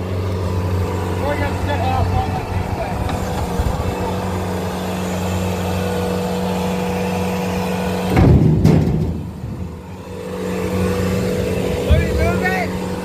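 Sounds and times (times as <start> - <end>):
diesel engine running: 0.0 - 13.0
loud low thump: 8.1 - 9.7.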